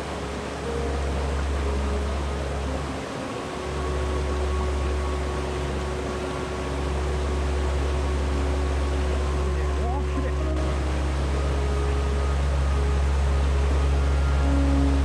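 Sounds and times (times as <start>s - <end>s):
stream water rushing: 0.0s - 15.0s.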